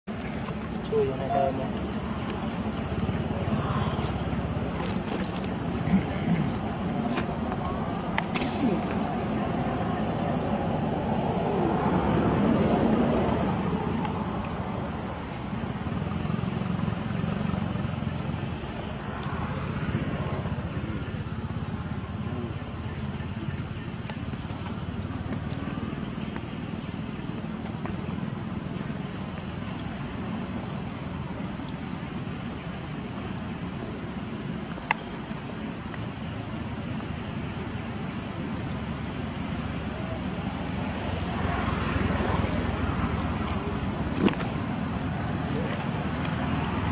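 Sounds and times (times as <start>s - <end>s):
high-pitched insect drone: 0.1s - 46.9s.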